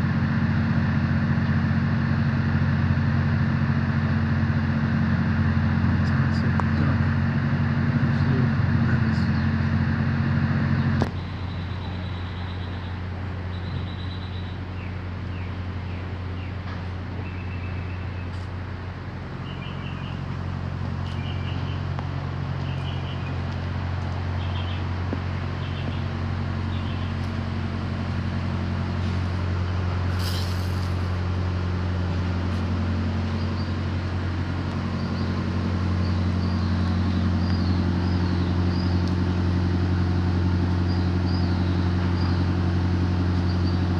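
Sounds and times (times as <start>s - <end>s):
truck engine idling: 0.0s - 43.9s
bird chirping: 10.8s - 16.6s, 17.2s - 18.4s, 19.4s - 20.3s, 21.0s - 21.9s, 22.6s - 23.4s, 24.4s - 27.3s, 34.9s - 39.1s
brief hiss: 30.1s - 31.1s.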